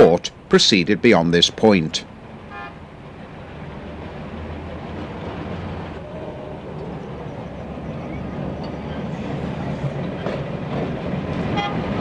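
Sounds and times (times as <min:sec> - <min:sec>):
street traffic: 0:00.0 - 0:12.0
tram engine rumble: 0:00.0 - 0:12.0.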